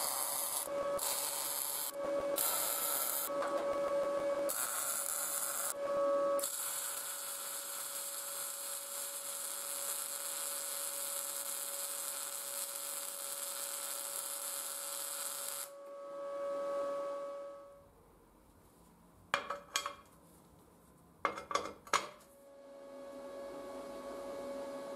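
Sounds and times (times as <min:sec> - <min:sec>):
welding arc crackling and hissing: 0:00.0 - 0:03.8, 0:04.5 - 0:05.8, 0:06.4 - 0:15.8
faint steady hum: 0:15.7 - 0:24.9.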